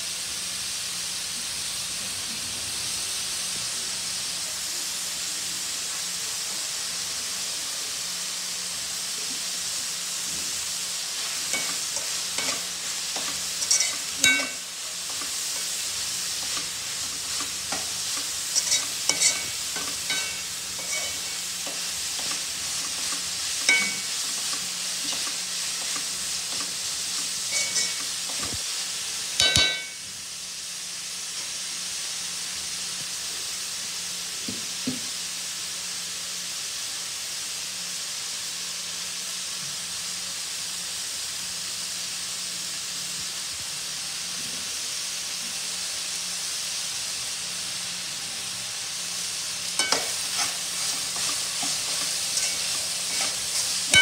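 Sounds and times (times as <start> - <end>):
vegetables sizzling in oil: 0.0 - 54.0
spatula clinking and scraping pan: 11.2 - 28.6, 29.4 - 30.0, 49.7 - 54.0.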